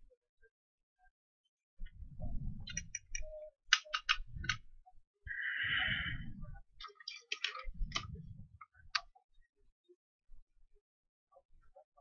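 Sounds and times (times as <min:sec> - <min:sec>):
tools clicking and tapping: 0:02.7 - 0:04.6, 0:06.8 - 0:08.1.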